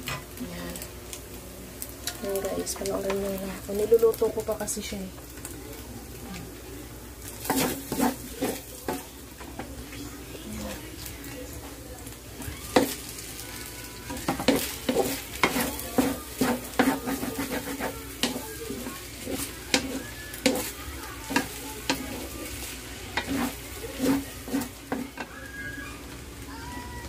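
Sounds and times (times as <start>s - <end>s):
meat sizzling: 0.0s - 27.0s
wooden spatula scraping wok: 7.2s - 9.7s, 12.4s - 25.8s.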